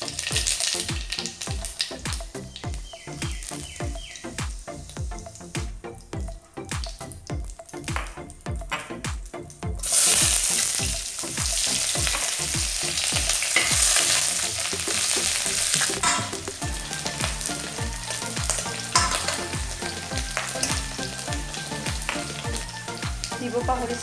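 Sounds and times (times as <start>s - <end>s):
onion sizzling in hot oil: 0.0s - 8.0s, 9.8s - 24.0s
metal ladle scraping wok: 13.4s - 14.3s, 18.9s - 19.5s.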